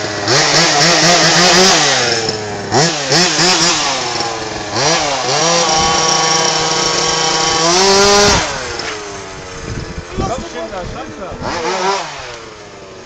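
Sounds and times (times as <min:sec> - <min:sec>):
rc buggy engine revving: 0:00.0 - 0:13.0.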